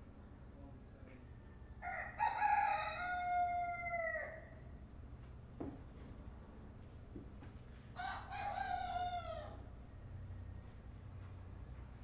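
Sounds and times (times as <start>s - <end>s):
rooster crowing: 1.8s - 4.6s, 8.0s - 9.7s.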